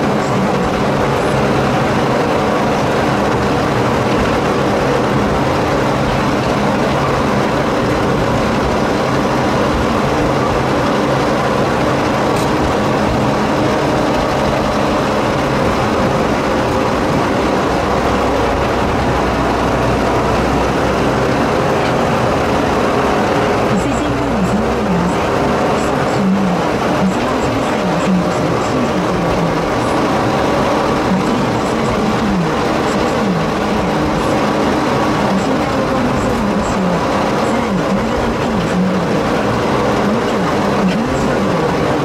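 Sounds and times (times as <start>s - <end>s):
diesel locomotive engine running: 0.0s - 42.0s
wheels rumbling on track: 0.0s - 42.0s.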